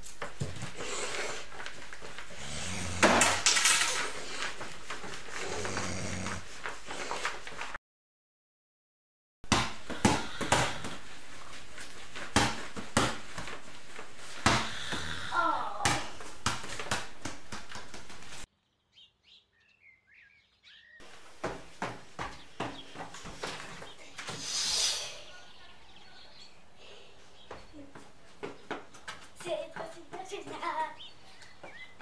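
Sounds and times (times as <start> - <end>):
ball bouncing on floor: 9.5 - 11.1, 12.2 - 13.6, 14.4 - 15.1, 15.8 - 18.2.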